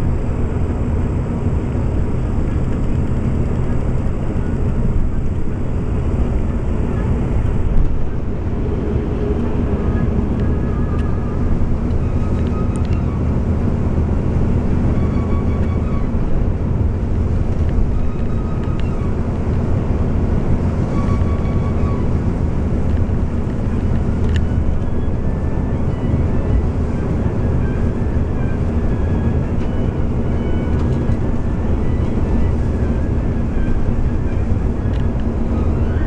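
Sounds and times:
bus engine and road noise: 0.0s - 36.0s.

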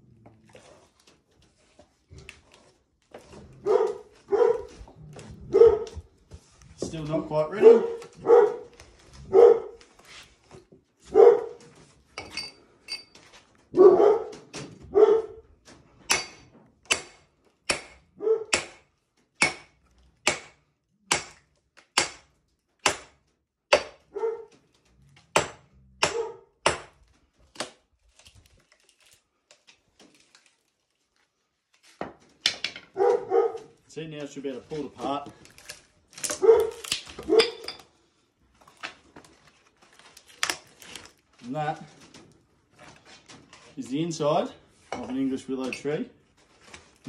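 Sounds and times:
sledgehammer striking steel axes: 16.1s - 24.1s, 25.3s - 27.0s.

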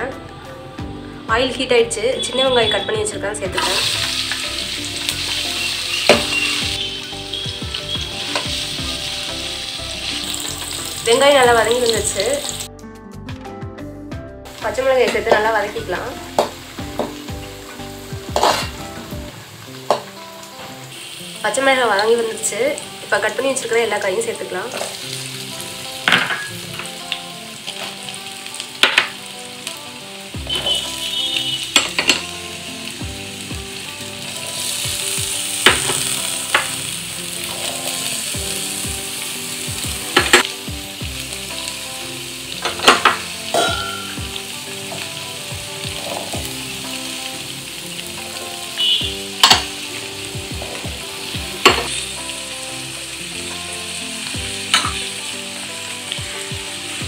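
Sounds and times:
vegetables sizzling in hot oil: 1.3s - 12.7s, 14.5s - 57.0s
vegetables clattering into metal pan: 18.4s - 18.8s, 42.6s - 44.2s.

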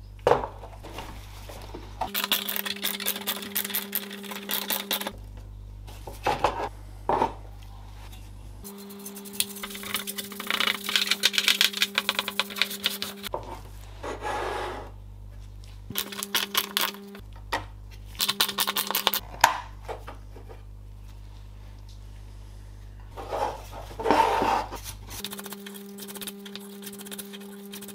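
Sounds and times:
scratching and rubbing plastic fan: 8.0s - 13.7s, 23.2s - 27.9s
paintbrush scrubbing metal casing: 8.7s - 13.3s, 25.1s - 27.9s.

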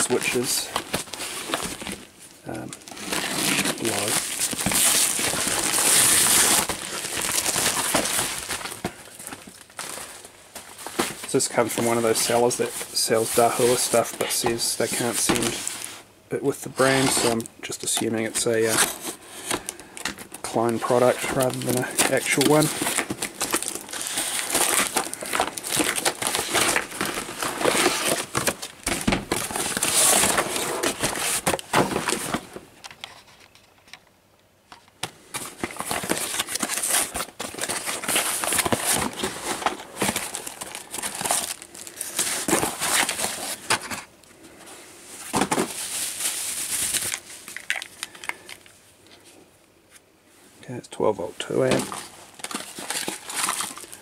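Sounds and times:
packing tape peeled and torn: 0.0s - 8.8s, 18.4s - 32.2s, 51.9s - 54.0s
plastic packaging crinkling: 0.0s - 33.7s, 35.3s - 44.1s, 45.2s - 48.8s, 51.5s - 54.0s.

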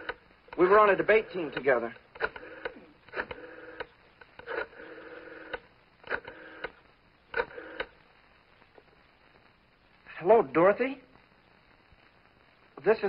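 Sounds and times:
rotary dial whirring: 0.0s - 8.0s
rotary dial clicks: 1.5s - 7.9s.

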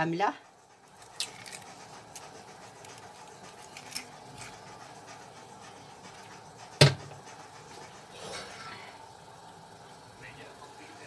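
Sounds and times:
egg cracking: 0.9s - 5.0s.

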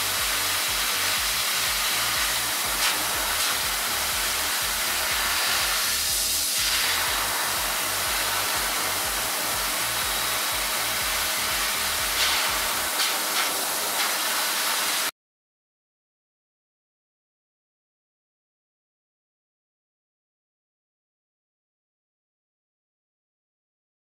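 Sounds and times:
dog dryer blowing air: 0.0s - 15.1s.

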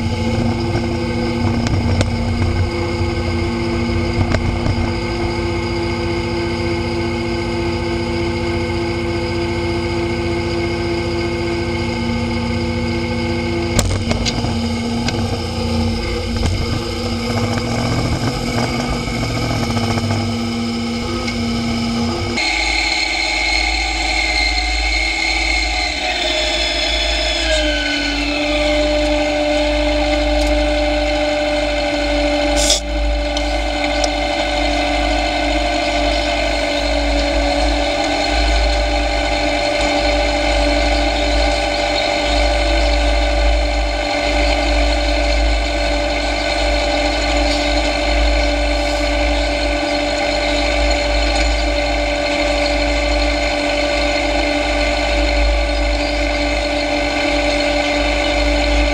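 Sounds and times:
tractor engine whining drone: 0.0s - 58.9s
sharp click: 32.6s - 32.8s.

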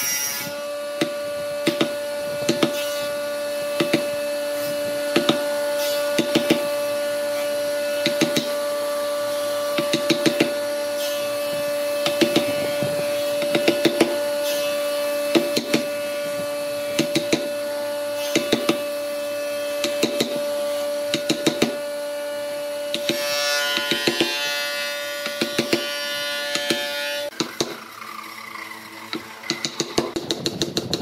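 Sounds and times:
wooden mallet striking a chisel: 1.0s - 2.8s, 3.8s - 4.1s, 5.1s - 5.4s, 6.2s - 6.7s, 8.0s - 8.6s, 9.8s - 10.6s, 12.0s - 12.6s, 13.4s - 14.2s, 15.3s - 15.9s, 17.0s - 17.5s, 18.3s - 18.8s, 19.8s - 20.4s, 21.1s - 21.8s, 23.8s - 24.3s, 25.2s - 25.9s, 26.5s - 27.8s, 29.1s - 31.0s.

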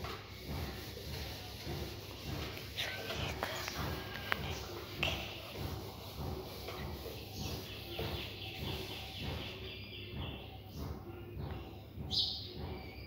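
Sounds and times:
duster rubbing a whiteboard: 0.0s - 12.8s
marker writing on whiteboard: 0.0s - 12.9s.

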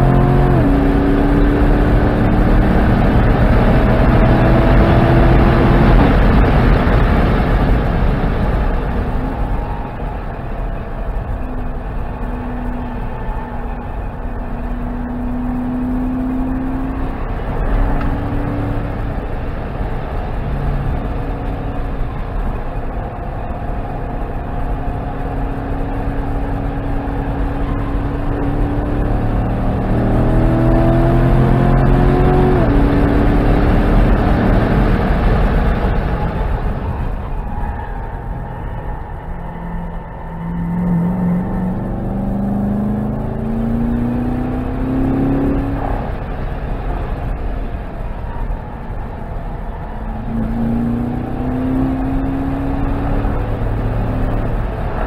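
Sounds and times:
car engine running hard: 0.0s - 55.0s
road and tyre rumble: 0.0s - 55.0s.

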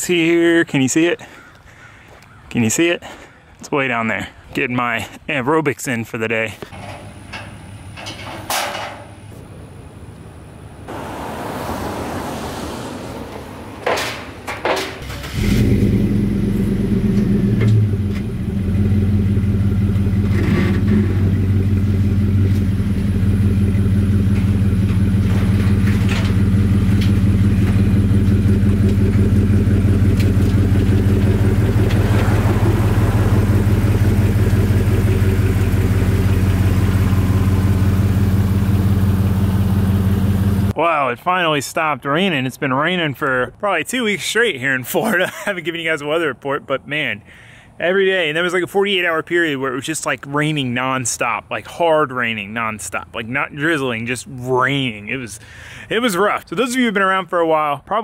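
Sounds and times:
truck engine starting and idling: 6.7s - 40.8s.

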